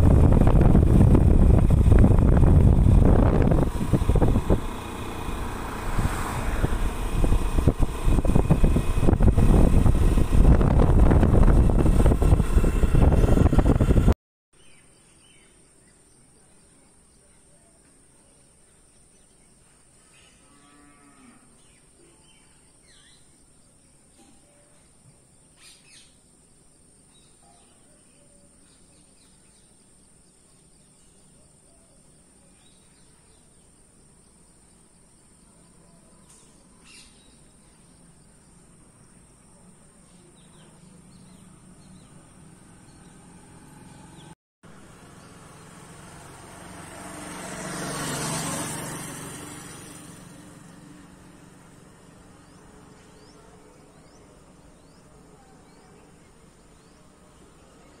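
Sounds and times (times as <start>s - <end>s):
vehicle approaching on road: 0.0s - 14.2s, 37.9s - 58.0s.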